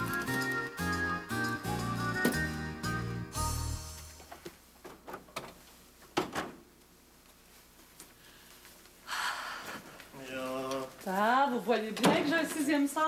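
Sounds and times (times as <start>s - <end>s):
music: 0.0s - 4.4s.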